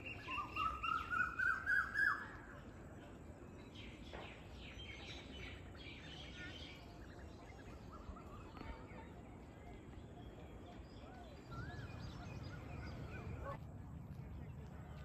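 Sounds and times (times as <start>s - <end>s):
faint bird chirping: 0.0s - 13.6s.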